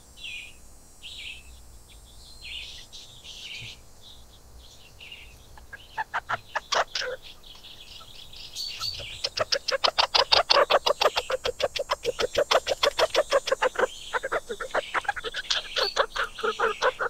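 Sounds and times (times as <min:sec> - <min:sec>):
small animal chattering call: 0:05.6 - 0:17.0.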